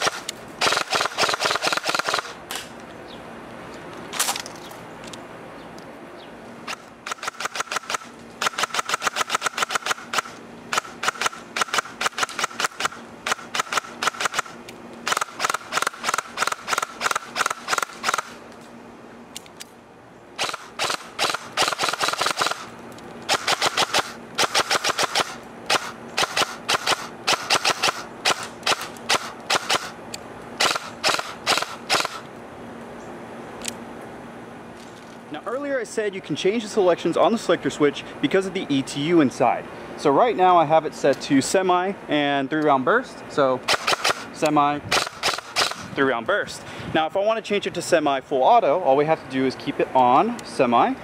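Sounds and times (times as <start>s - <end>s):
airsoft rifle rapid shots: 0.0s - 2.4s, 6.7s - 18.4s, 20.4s - 22.7s, 23.3s - 30.0s, 30.6s - 32.2s, 43.7s - 44.3s, 44.9s - 45.9s
steady motor whir: 30.6s - 32.3s.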